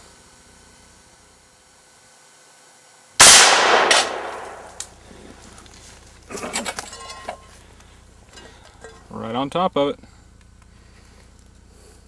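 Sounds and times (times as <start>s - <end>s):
rifle shot hitting steel: 3.2s - 5.0s.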